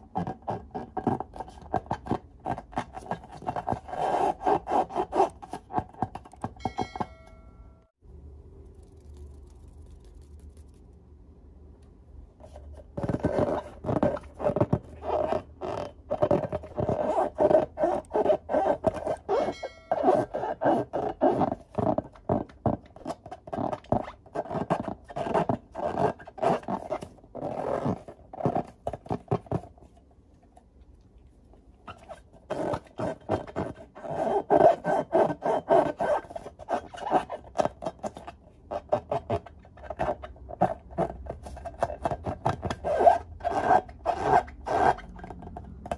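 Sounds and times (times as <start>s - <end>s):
hands rubbing balloons: 12.4s - 30.0s.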